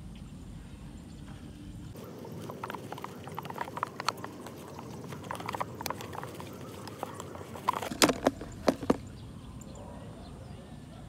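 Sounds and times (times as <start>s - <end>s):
plastic bottle crinkling and clicking: 2.0s - 9.1s.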